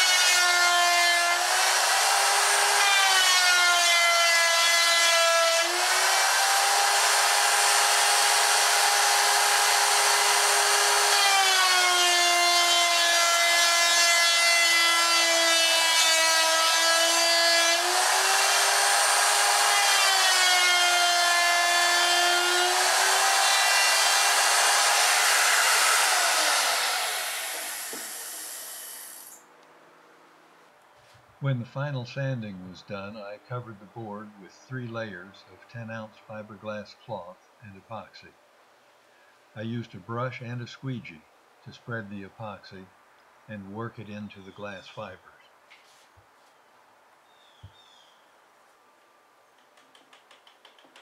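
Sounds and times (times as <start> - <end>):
electric router cutting wood: 0.0 - 29.4.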